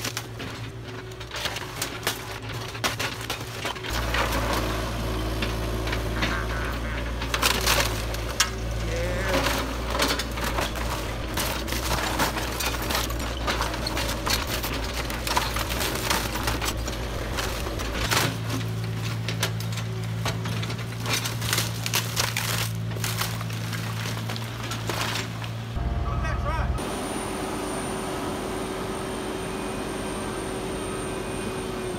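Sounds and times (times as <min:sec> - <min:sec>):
excavator diesel engine running: 0:00.0 - 0:31.9
wood splintering cracks: 0:20.7 - 0:25.6.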